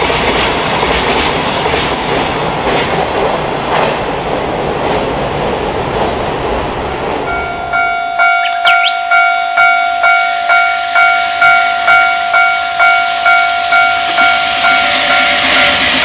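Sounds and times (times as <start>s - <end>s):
approaching freight train rushing: 0.0s - 16.0s
level-crossing alarm clanging: 7.3s - 16.0s.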